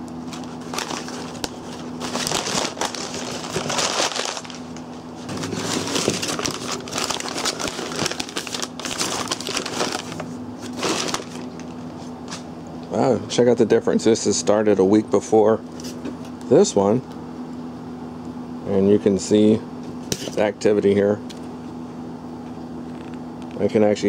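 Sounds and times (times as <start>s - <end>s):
packing paper crinkling: 0.2s - 12.4s.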